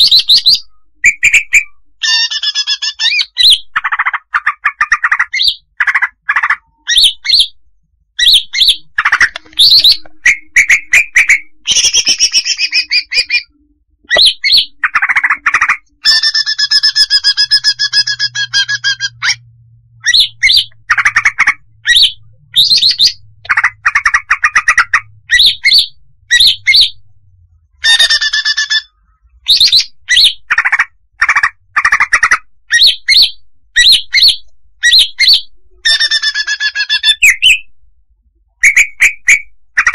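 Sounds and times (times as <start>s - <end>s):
bird chirping and whistling: 0.0s - 7.6s, 8.2s - 27.0s, 27.8s - 37.7s, 38.6s - 39.9s
buzzy bird call: 8.2s - 19.4s.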